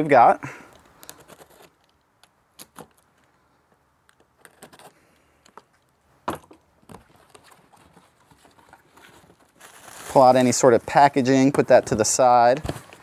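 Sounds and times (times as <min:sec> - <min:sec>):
cardboard flaps folding: 0:11.6 - 0:13.0.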